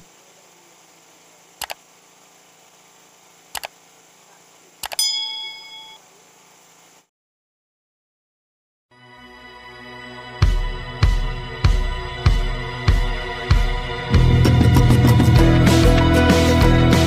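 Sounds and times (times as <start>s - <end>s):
faint hiss: 0.0s - 7.1s
mouse double clicks: 1.6s - 1.8s, 3.5s - 3.8s, 4.8s - 5.0s
notification ding: 5.0s - 6.0s.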